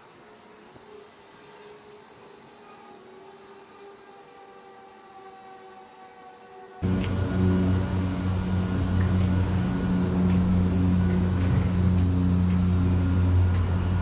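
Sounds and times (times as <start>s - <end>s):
low mechanical drone: 6.8s - 14.0s.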